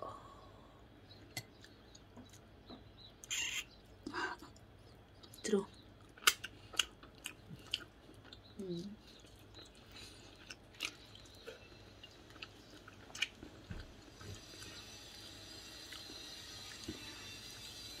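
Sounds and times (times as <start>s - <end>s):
person chewing: 4.5s - 17.9s.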